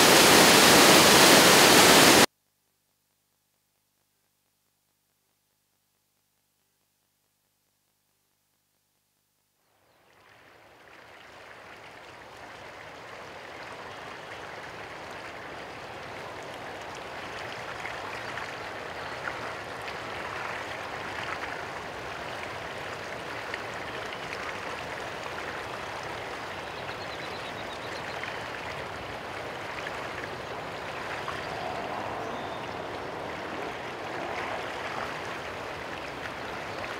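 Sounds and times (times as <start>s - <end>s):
running water rushing: 0.0s - 2.3s, 10.2s - 36.9s.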